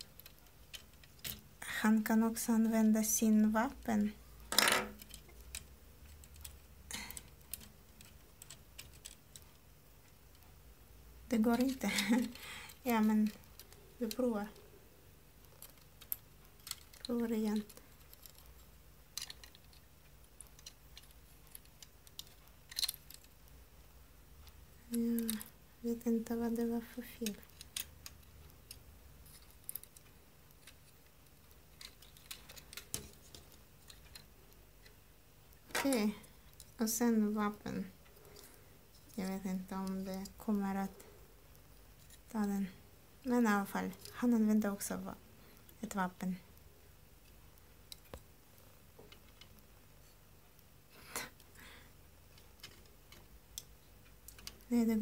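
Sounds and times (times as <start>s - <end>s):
plastic toy parts clicking: 0.0s - 1.6s, 4.5s - 10.5s, 11.4s - 14.7s, 15.4s - 23.6s, 24.4s - 25.6s, 26.2s - 35.0s, 52.3s - 54.7s.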